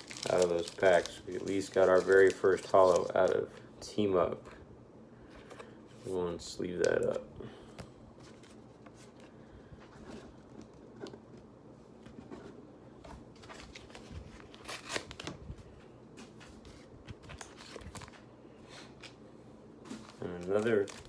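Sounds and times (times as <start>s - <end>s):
plastic crackles: 0.0s - 3.6s, 19.9s - 21.0s
cards and packaging rustling: 0.0s - 3.7s, 5.3s - 7.2s, 13.0s - 19.2s, 19.9s - 21.0s.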